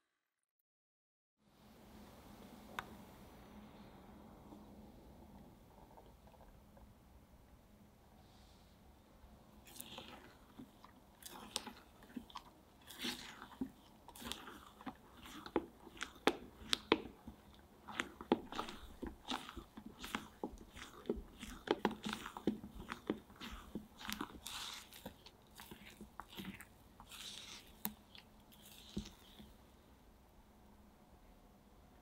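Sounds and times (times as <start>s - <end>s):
spatula scraping wet mixture: 9.6s - 29.6s.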